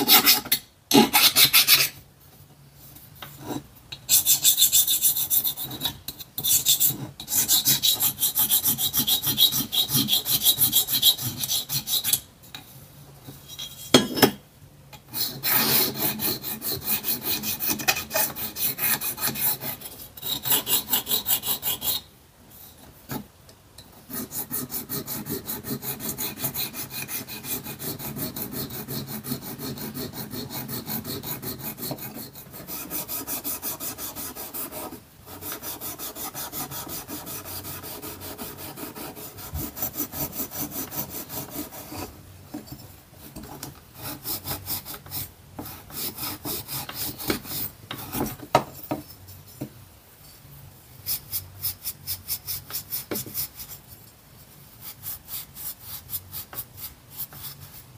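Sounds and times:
needle file scraping metal: 0:00.0 - 0:02.0, 0:03.4 - 0:12.3, 0:15.0 - 0:22.1, 0:24.1 - 0:49.6.

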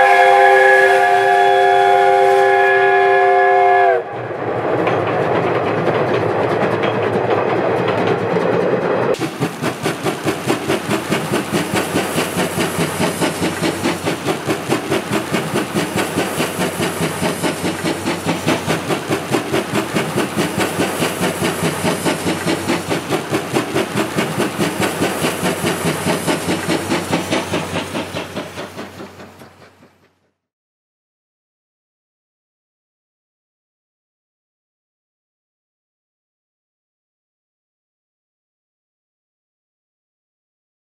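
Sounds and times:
steam hissing: 0:00.0 - 0:03.7, 0:09.2 - 0:30.0
steam locomotive exhaust chuffs: 0:00.0 - 0:04.4, 0:05.0 - 0:30.4.

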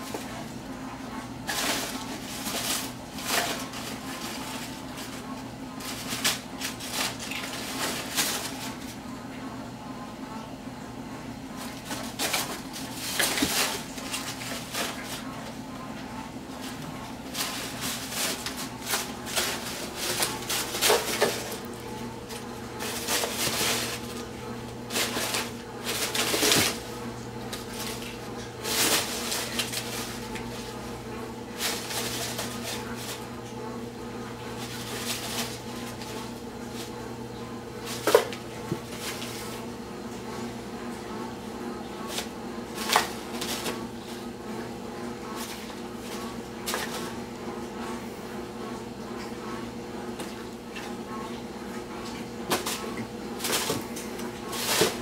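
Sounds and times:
steady low hum: 0:00.0 - 0:55.0
paper crinkling and rustling: 0:01.4 - 0:09.1, 0:11.6 - 0:39.8, 0:41.8 - 0:44.4, 0:45.2 - 0:47.2, 0:52.0 - 0:55.0.

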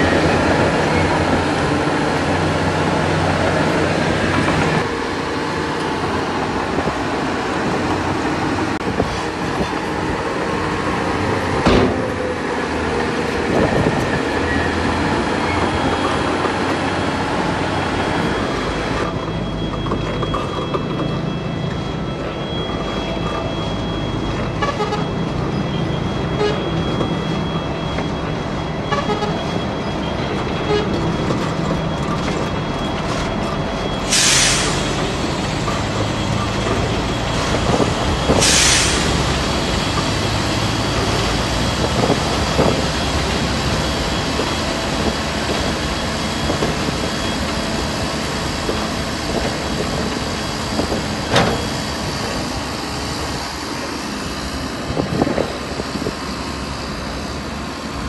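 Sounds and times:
heavy diesel machinery running: 0:00.0 - 0:58.0
air hissing: 0:38.4 - 0:39.3.

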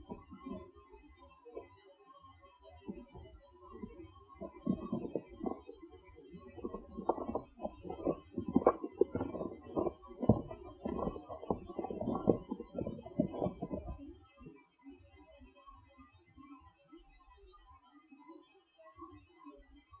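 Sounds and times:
muffled thumps and scuffing: 0:02.9 - 0:05.7, 0:06.4 - 0:14.0.

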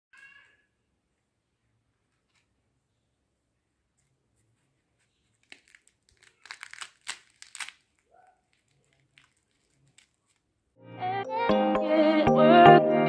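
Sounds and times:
pastry cracking when broken: 0:05.4 - 0:10.5.

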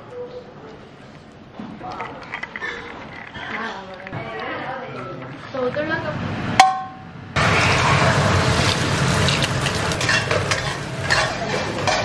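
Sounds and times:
eggs sizzling in hot oil: 0:07.4 - 0:12.0
metal spatula scraping wok: 0:07.4 - 0:12.0.

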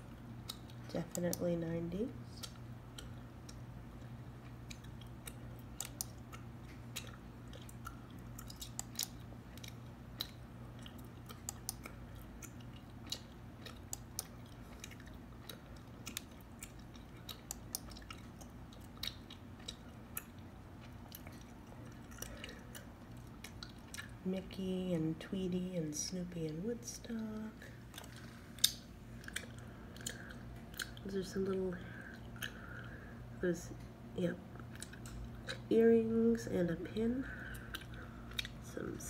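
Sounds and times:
steady low hum: 0:00.0 - 0:39.0
gum chewing clicks: 0:00.1 - 0:01.5, 0:02.4 - 0:24.3, 0:27.8 - 0:33.1, 0:34.5 - 0:35.8, 0:37.3 - 0:38.6.

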